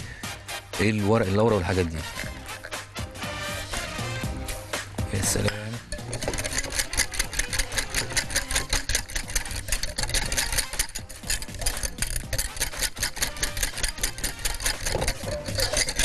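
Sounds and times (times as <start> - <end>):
whisk clattering in a glass bowl: 5.2 - 16.0.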